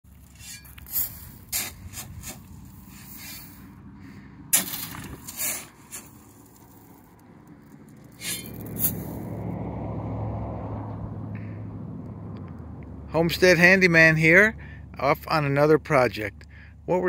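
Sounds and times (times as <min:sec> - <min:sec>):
gravel scattering: 0:00.1 - 0:03.7, 0:04.5 - 0:09.3
shovel scraping gravel: 0:00.1 - 0:03.8, 0:04.5 - 0:07.2, 0:07.9 - 0:09.3.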